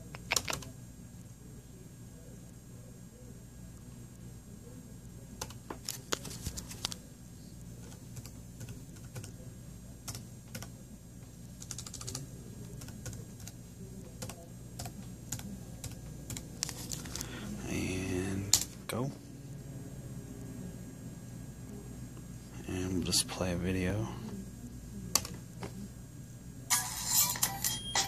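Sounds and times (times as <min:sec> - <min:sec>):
faint steady hum: 0:00.0 - 0:28.0
laptop keyboard typing: 0:00.1 - 0:00.7, 0:07.8 - 0:09.4, 0:10.0 - 0:10.7, 0:11.6 - 0:16.8, 0:25.2 - 0:25.4.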